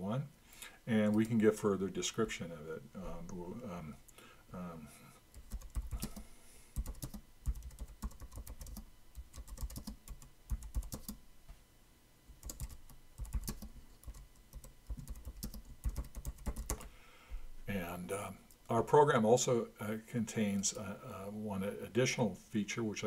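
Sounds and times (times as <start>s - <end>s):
typing on a computer keyboard: 5.3s - 6.2s, 6.8s - 11.2s, 12.4s - 16.8s.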